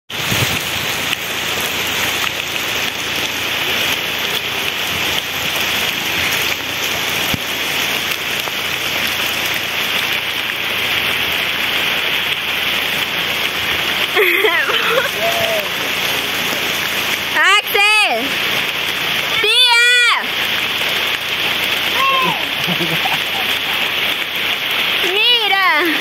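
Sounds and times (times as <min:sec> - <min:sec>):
steady outdoor hiss: 0:00.2 - 0:26.0.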